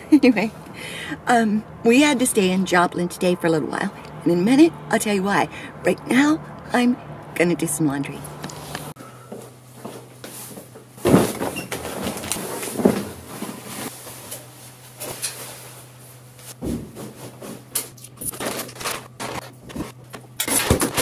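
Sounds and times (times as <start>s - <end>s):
steady low hum: 0.0s - 21.0s
laundry bags thumping down: 10.4s - 14.4s, 16.5s - 17.6s.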